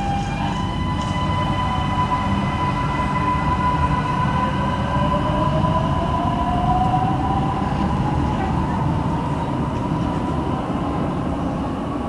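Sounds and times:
train motor whine rising: 0:00.0 - 0:08.4
metro train rumble: 0:00.0 - 0:12.0.

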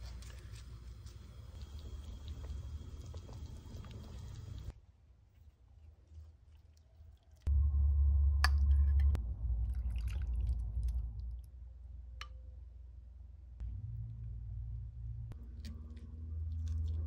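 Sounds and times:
low rumble: 0:07.5 - 0:17.0
soup splashing and dripping: 0:09.6 - 0:11.5.

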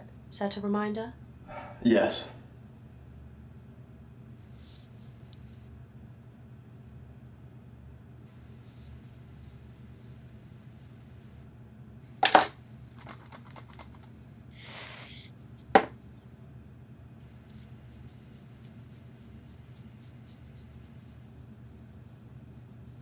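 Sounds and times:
aerosol can hissing: 0:14.5 - 0:15.9.

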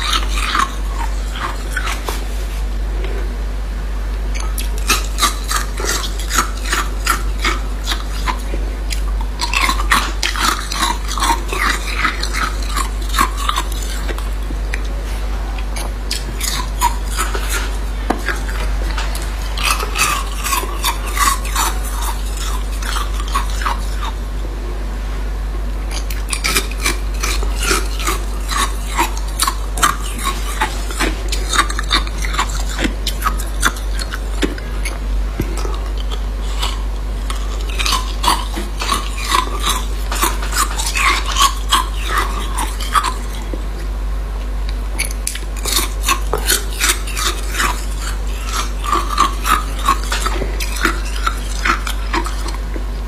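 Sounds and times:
steady low hum: 0:00.0 - 0:53.0
ice cubes crunching in teeth: 0:45.0 - 0:52.6.

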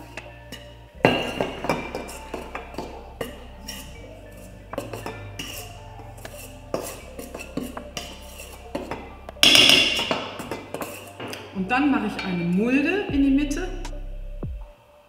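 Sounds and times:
utensil scraping metal bowl: 0:00.0 - 0:12.6.

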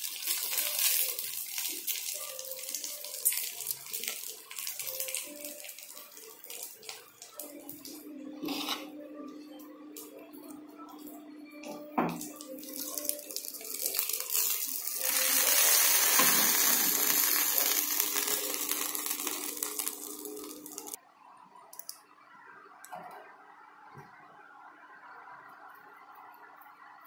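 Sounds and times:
hot oil sizzling: 0:00.0 - 0:07.6, 0:12.1 - 0:21.0.

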